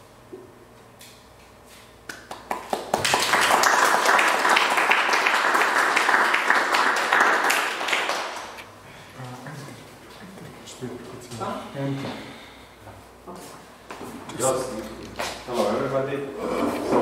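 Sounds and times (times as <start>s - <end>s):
audience applauding: 2.2s - 8.6s.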